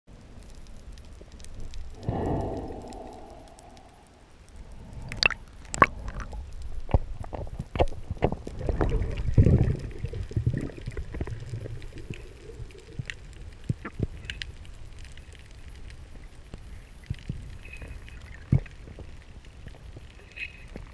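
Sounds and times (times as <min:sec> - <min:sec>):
underwater rushing water: 0:01.9 - 0:14.4.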